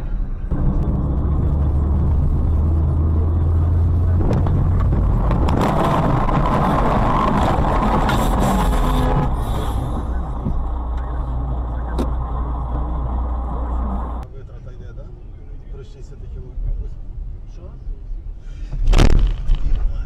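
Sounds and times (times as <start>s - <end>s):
car road and engine noise: 0.0s - 20.0s.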